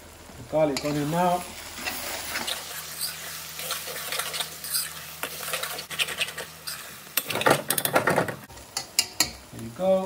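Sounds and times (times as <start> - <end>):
garlic and onions sizzling in oil: 0.0 - 10.0
metal spoon scraping a wok: 1.8 - 7.8.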